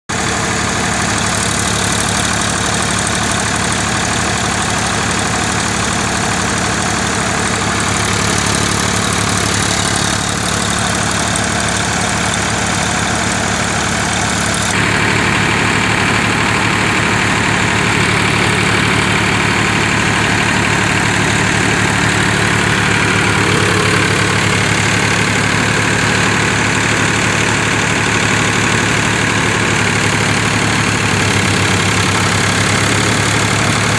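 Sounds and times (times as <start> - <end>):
tractor diesel engine running: 0.1 - 33.9
threshing machine rushing noise: 14.3 - 33.9.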